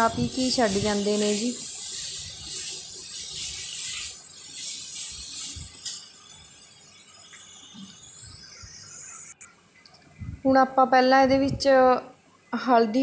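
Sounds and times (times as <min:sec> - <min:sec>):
paste sizzling: 0:00.0 - 0:09.3.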